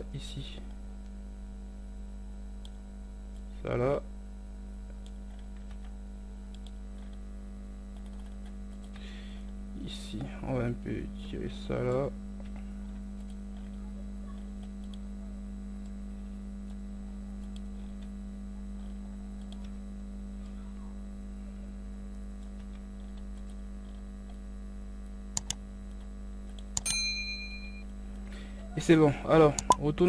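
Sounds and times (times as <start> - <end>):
electrical hum: 0.0 - 30.0
mouse and keyboard clicks: 25.4 - 25.6, 29.6 - 29.8
sharp clicks: 25.4 - 25.6, 29.6 - 29.8
bell-like ding: 26.8 - 27.8.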